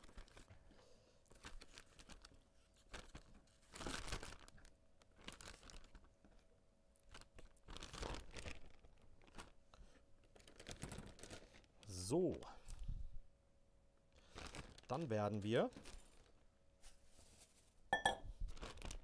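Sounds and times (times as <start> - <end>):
plastic bag crinkling: 0.0 - 0.5, 1.3 - 6.1, 7.0 - 12.0, 14.2 - 16.4, 18.4 - 19.0.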